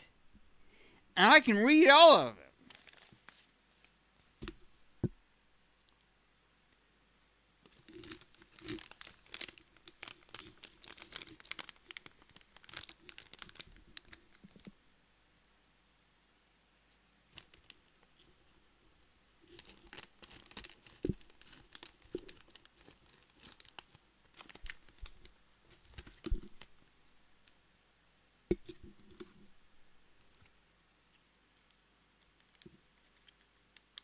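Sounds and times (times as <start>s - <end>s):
bag crinkling and rustling: 2.6s - 3.5s, 7.7s - 14.6s, 19.5s - 26.8s.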